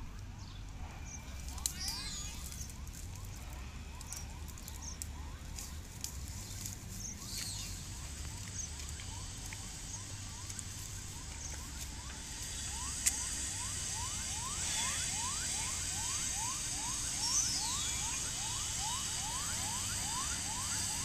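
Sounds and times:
steady low rumble: 0.0s - 21.0s
high hiss: 6.9s - 21.0s.

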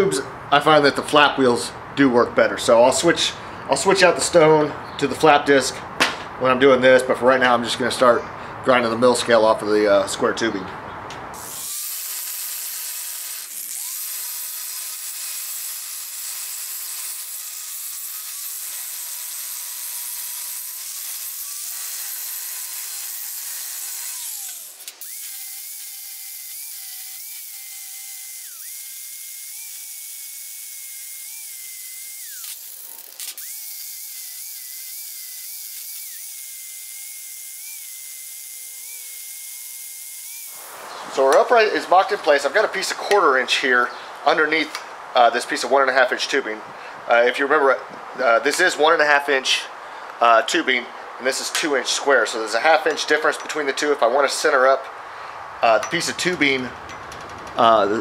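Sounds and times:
angle grinder grinding steel: 11.4s - 42.8s, 55.6s - 58.0s.

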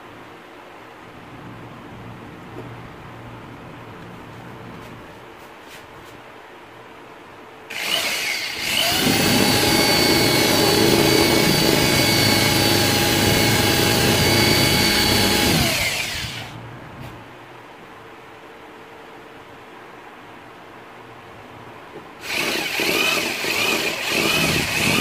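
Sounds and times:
electric drill boring into wood: 7.7s - 16.6s, 22.2s - 25.0s.

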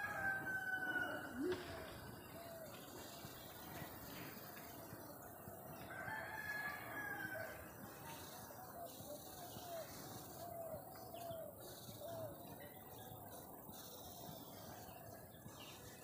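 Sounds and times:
rooster crowing faintly: 0.0s - 1.9s.

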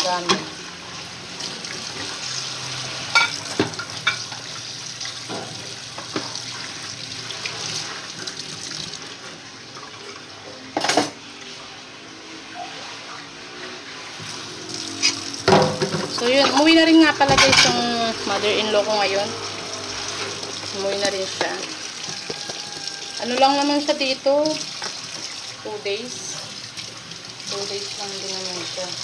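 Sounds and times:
water splashing in sink: 0.0s - 29.0s
dishes clinking: 3.1s - 4.3s, 17.3s - 17.8s
dishes clattering: 3.1s - 4.4s, 10.7s - 11.2s, 15.4s - 17.8s, 20.9s - 23.6s.

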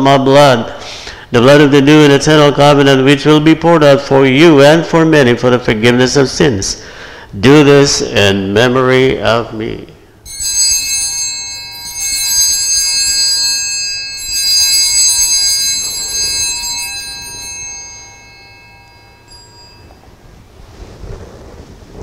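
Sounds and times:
altar bells ringing: 10.2s - 20.6s.

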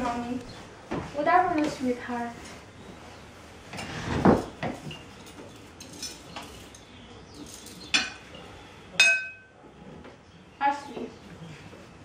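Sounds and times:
chair scraping and thumping: 3.7s - 5.1s
spoons clinking on bowls: 4.9s - 6.8s, 9.0s - 9.5s.

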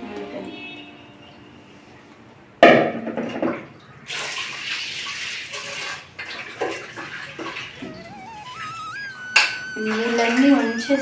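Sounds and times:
water splashing in steel sink: 2.6s - 11.0s.

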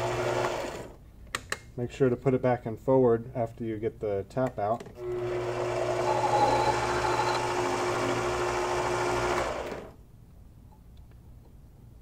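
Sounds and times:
lathe motor whining: 5.0s - 10.0s.

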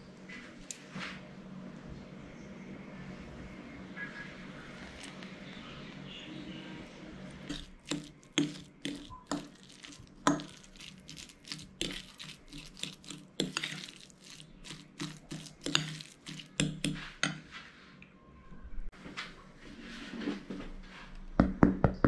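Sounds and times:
fork mashing in ceramic bowl: 7.5s - 17.5s.

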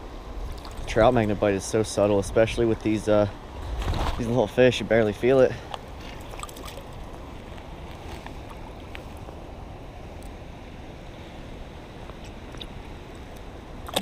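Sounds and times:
creek running over stones: 0.4s - 2.3s, 3.9s - 9.5s, 11.6s - 14.0s.

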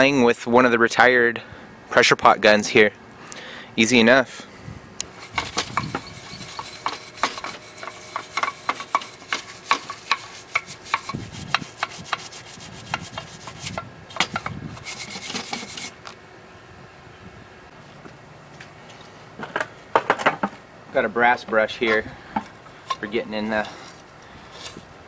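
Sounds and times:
hand brush scrubbing metal: 5.1s - 16.0s.

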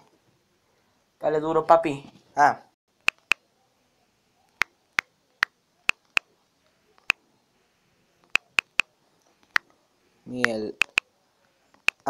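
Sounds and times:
phone keyboard clicks: 3.0s - 3.4s, 8.3s - 8.9s, 10.4s - 11.0s.

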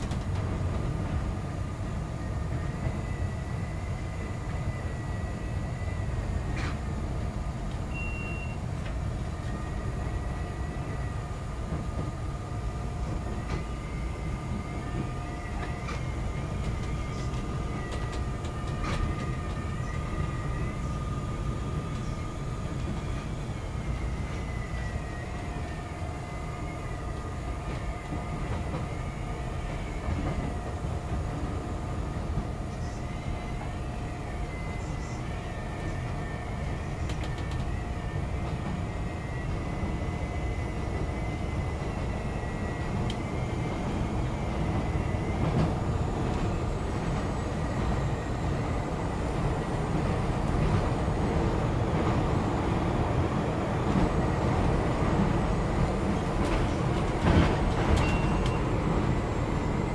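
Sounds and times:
train clicks: 0.0s - 1.3s, 6.5s - 6.8s, 13.0s - 13.7s, 15.0s - 20.0s, 36.6s - 37.8s, 42.8s - 48.1s, 53.8s - 59.1s
train rumbling on elevated track: 0.0s - 59.9s.

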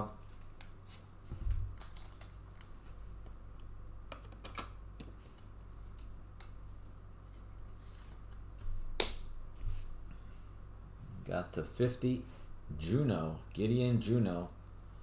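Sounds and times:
steady low hum: 0.0s - 15.0s
cards clicking and rustling: 1.8s - 2.8s, 4.1s - 6.6s.

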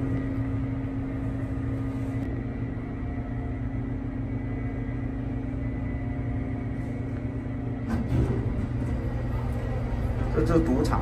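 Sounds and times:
ship machinery hum: 0.0s - 11.0s.

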